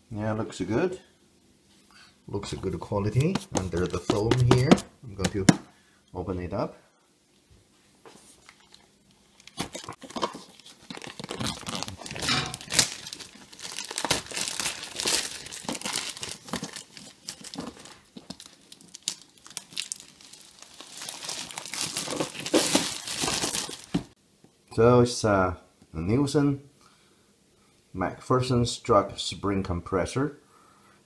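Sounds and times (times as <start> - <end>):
plastic packaging crinkling: 2.7 - 5.4, 8.5 - 24.2.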